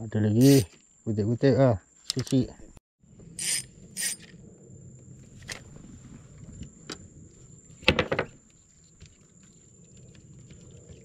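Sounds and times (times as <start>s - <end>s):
high insect drone: 0.0s - 11.0s
fishing gear clicks and knocks: 2.0s - 2.5s.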